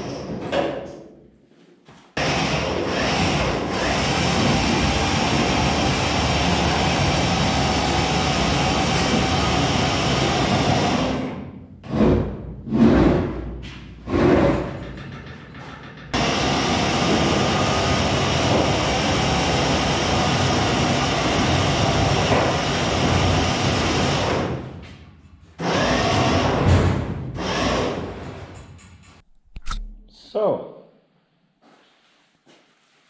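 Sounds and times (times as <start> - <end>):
car body scraping on concrete: 12.0 - 14.8.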